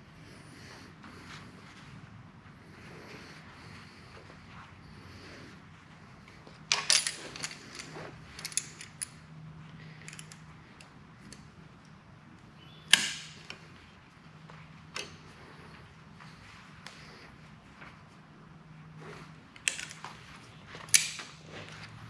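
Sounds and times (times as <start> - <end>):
pliers clicking on metal: 6.7 - 9.2, 10.0 - 12.0, 12.9 - 13.6, 19.6 - 20.2, 20.8 - 21.4.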